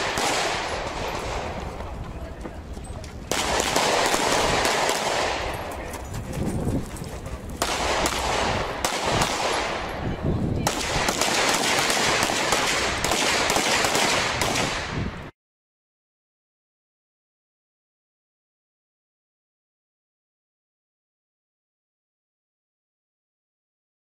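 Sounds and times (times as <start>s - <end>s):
rapid pistol shots: 0.0s - 1.5s, 3.3s - 5.6s, 7.6s - 9.9s, 10.6s - 15.1s.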